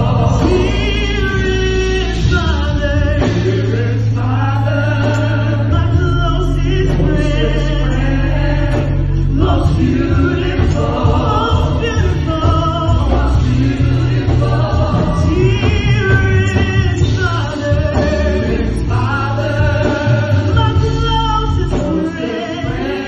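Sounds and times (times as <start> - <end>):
backing singers: 0.0 - 23.0
low bass notes: 0.0 - 23.0.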